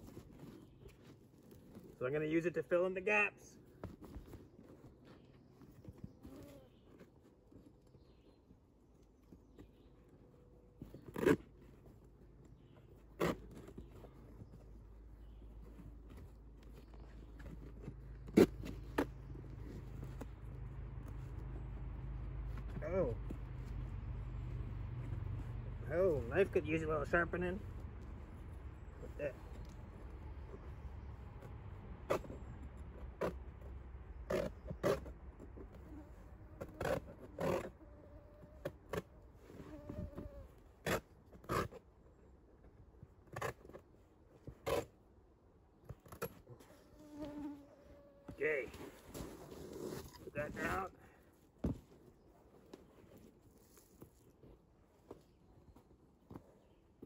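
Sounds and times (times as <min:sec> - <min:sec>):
felt scraping and rustling: 0:00.0 - 0:03.0, 0:03.6 - 0:57.0
low steady rumble: 0:13.9 - 0:38.5.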